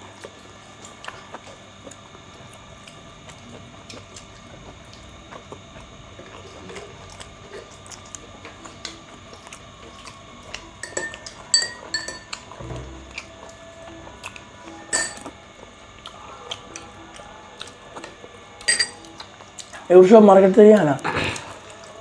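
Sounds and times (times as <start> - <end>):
cutlery clinking on plates: 10.8 - 12.6, 14.9 - 15.3, 18.7 - 19.0.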